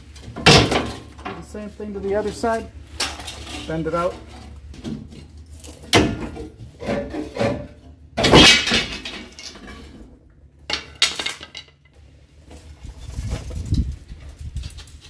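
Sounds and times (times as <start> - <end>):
metal leaf springs clanking and scraping: 0.0 - 10.1.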